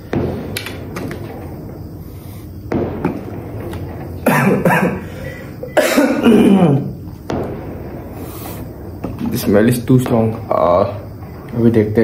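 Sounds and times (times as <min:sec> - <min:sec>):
man coughing: 0:04.2 - 0:07.0.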